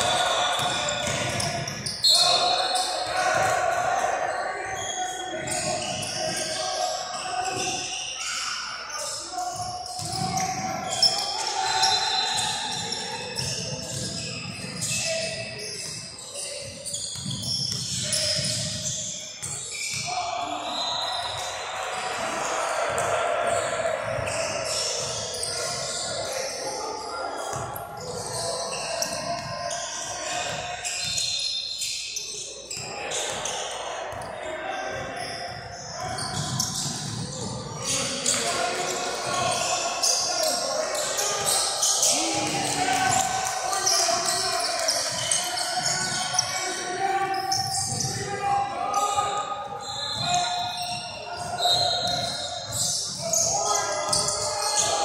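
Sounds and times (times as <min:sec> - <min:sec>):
sneakers squeaking: 0:00.0 - 0:55.0
indistinct voices echoing: 0:32.5 - 0:55.0.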